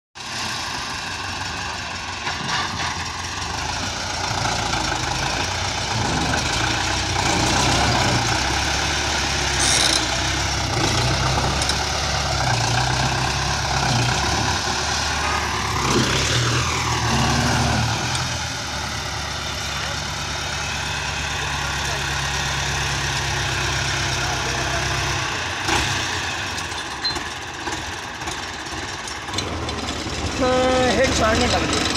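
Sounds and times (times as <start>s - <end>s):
tractor diesel engine under load: 0.2s - 31.9s.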